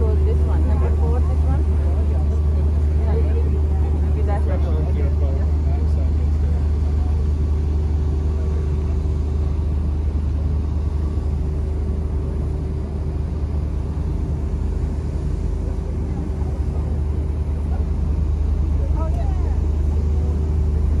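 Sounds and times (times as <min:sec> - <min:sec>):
ship engines idling: 0:00.0 - 0:21.0.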